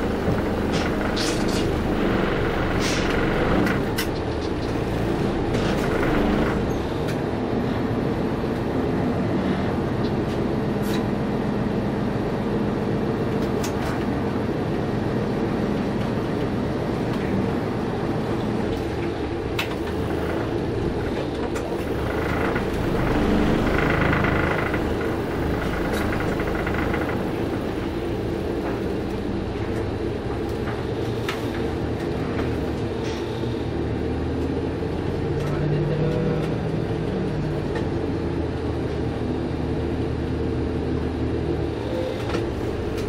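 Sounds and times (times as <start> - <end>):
bus engine running: 0.0 - 43.0
sharp clicks and rattles: 21.5 - 27.9.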